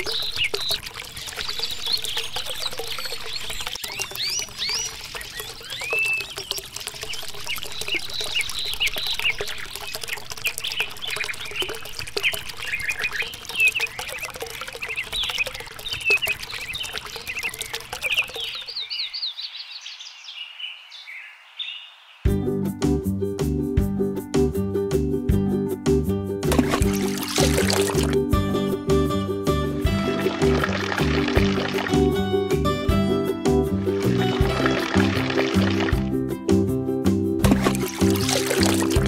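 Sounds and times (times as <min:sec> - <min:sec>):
water trickling into pool: 0:00.0 - 0:19.4, 0:26.5 - 0:28.4, 0:29.8 - 0:33.1, 0:33.7 - 0:36.2, 0:37.4 - 0:39.0
small birds chirping: 0:00.0 - 0:22.3
music: 0:22.3 - 0:39.0.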